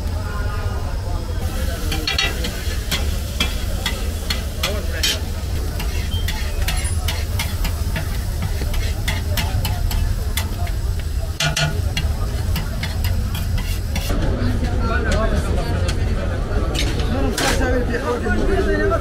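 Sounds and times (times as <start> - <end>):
food sizzling in metal pan: 0.2 - 14.8.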